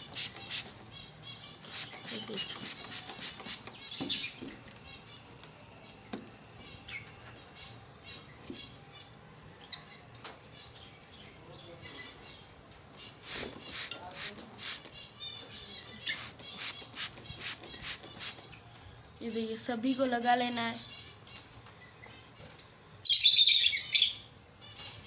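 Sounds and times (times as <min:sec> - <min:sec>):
lovebirds chirping: 0:00.0 - 0:25.0
wings flapping: 0:01.7 - 0:03.7, 0:16.2 - 0:18.5.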